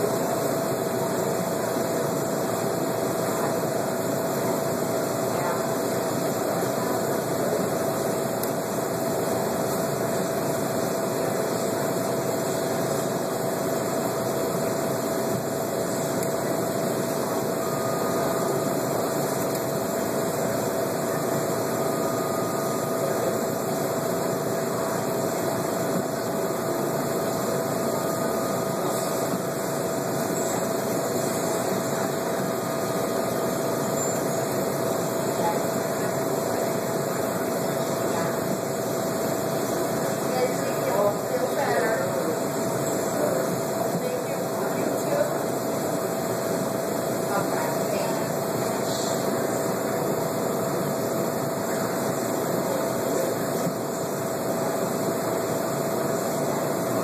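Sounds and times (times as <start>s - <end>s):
machinery hum and hiss: 0.0s - 57.0s.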